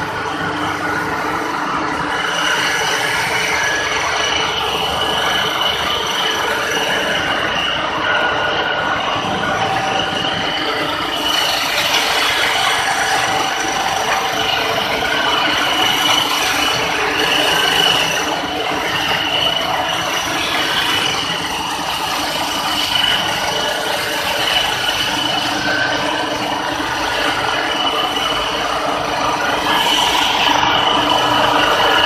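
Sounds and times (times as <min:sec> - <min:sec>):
machinery mechanical din: 0:00.0 - 0:32.0.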